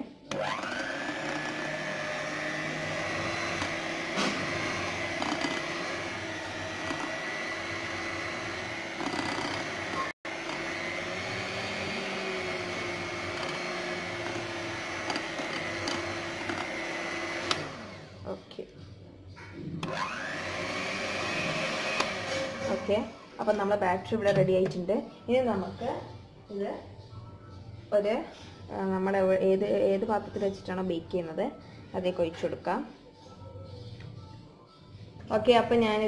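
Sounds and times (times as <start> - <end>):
electric hand mixer whirring: 0.2 - 18.2, 19.8 - 23.3.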